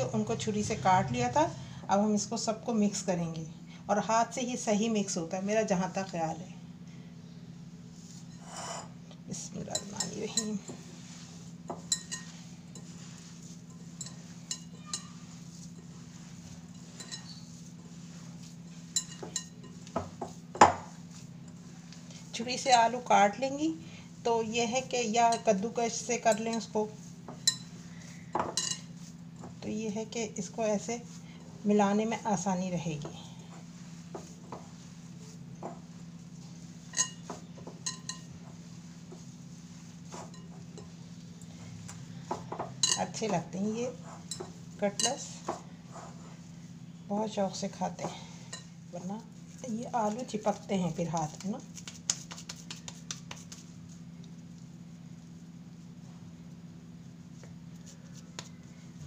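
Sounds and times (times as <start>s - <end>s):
hands kneading food mixture: 0.0s - 6.5s, 9.1s - 59.0s
steady low hum: 0.0s - 59.0s
glass bowl clinking: 8.3s - 9.0s, 11.7s - 17.6s, 18.8s - 21.6s, 27.3s - 28.9s, 36.8s - 38.4s, 42.5s - 43.2s.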